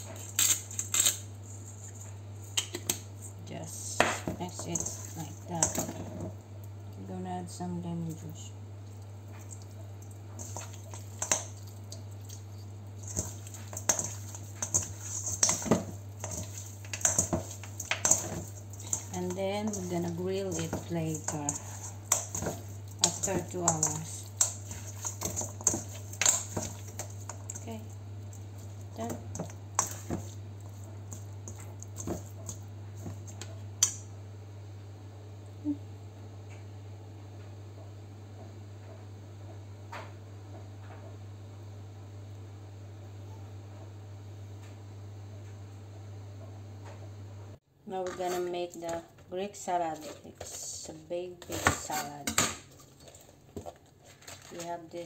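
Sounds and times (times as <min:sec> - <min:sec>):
meat squishing in a bowl: 0:00.0 - 0:07.1, 0:07.9 - 0:34.0, 0:47.9 - 0:55.0.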